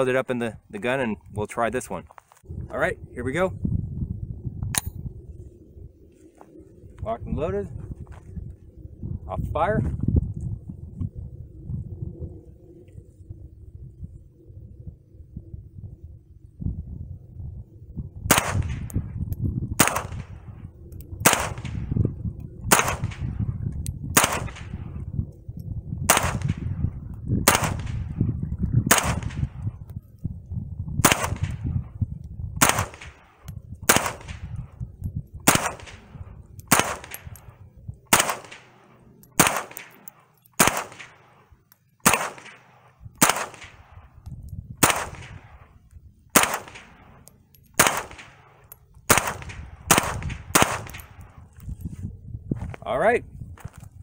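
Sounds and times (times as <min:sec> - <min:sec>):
wind rumbling on microphone: 0:00.0 - 0:54.0
rifle shots: 0:18.3 - 0:18.9, 0:19.8 - 0:20.5, 0:21.2 - 0:21.9, 0:22.7 - 0:23.4, 0:24.1 - 0:24.8, 0:26.1 - 0:26.7, 0:27.4 - 0:28.2, 0:28.9 - 0:29.6, 0:31.0 - 0:31.6, 0:32.6 - 0:34.5, 0:35.4 - 0:37.5, 0:38.1 - 0:44.1, 0:44.8 - 0:47.2, 0:47.8 - 0:51.3.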